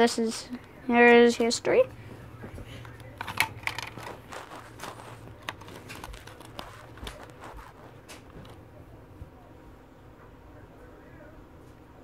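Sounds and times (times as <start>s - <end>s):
low steady hum: 0.0s - 12.0s
plastic clicks of cd case: 2.8s - 8.6s.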